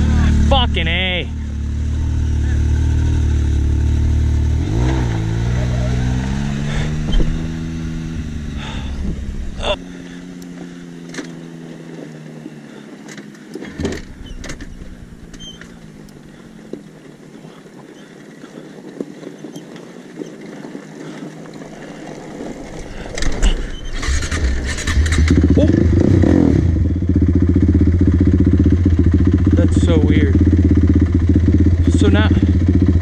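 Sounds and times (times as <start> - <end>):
engine running: 0.0 - 33.0
loud engine starting: 1.8 - 11.3, 22.6 - 28.1
tyres crunching on gravel: 6.3 - 25.2.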